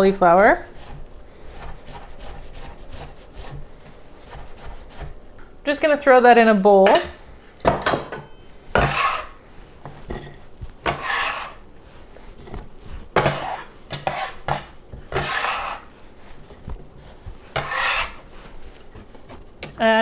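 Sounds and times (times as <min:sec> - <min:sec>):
scraper scraping on wooden board: 0:08.8 - 0:09.4, 0:10.9 - 0:11.6, 0:13.2 - 0:15.9, 0:17.5 - 0:18.3.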